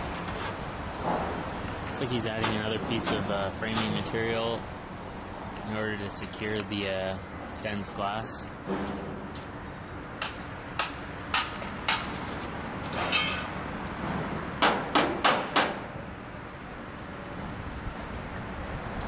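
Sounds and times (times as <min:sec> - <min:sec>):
hammer blows on wood framing: 0:13.1 - 0:16.0.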